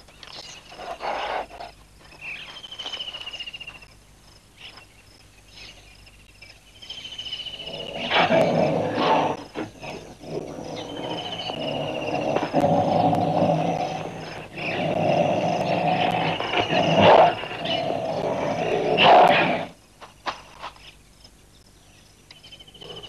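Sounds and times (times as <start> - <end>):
tigers growling: 7.5 - 19.8, 22.7 - 23.0.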